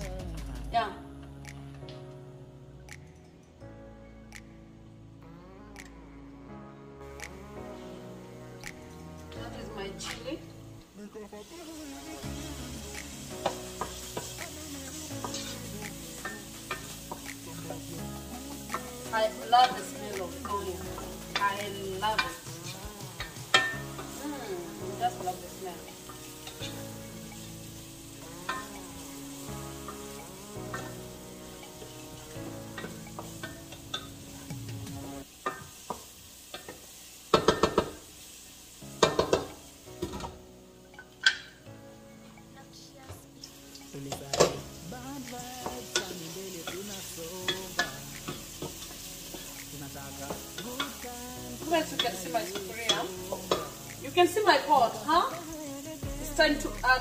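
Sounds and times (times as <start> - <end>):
faint background music: 0.0 - 57.0
onions sizzling in hot oil: 8.0 - 42.5, 43.3 - 57.0
spatula tapping pot rim: 39.0 - 39.6.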